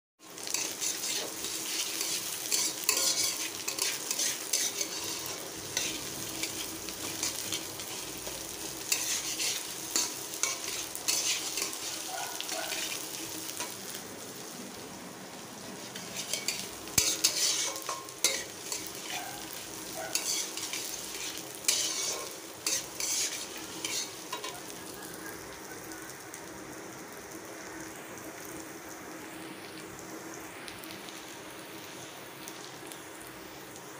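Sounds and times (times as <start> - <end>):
food sizzling in oil: 0.2 - 33.9
metal spatula scraping pan: 0.4 - 13.0, 15.9 - 24.6.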